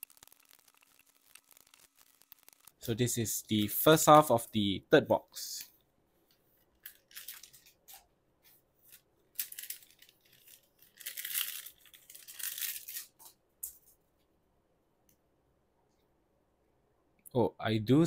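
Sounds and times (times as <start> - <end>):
foil wrappers crinkling and tearing: 0.0 - 2.8, 6.8 - 8.0, 8.9 - 13.2.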